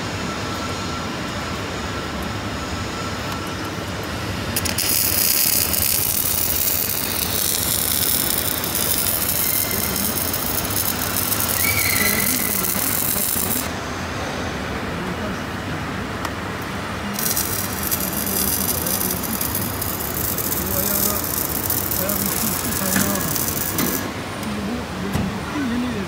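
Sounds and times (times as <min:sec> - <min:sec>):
workshop hum: 0:00.0 - 0:26.0
arc welding crackling hiss: 0:04.5 - 0:13.7, 0:17.1 - 0:24.1.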